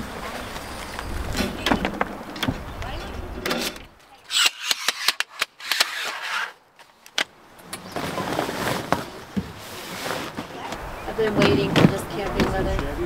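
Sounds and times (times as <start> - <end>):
tent fabric rustling and scraping: 7.8 - 10.7.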